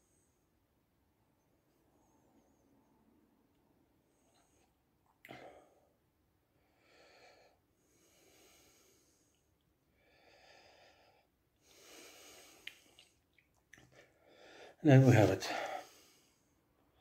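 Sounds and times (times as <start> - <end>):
man breathing heavily: 6.6 - 9.4, 10.0 - 12.9, 13.9 - 16.5.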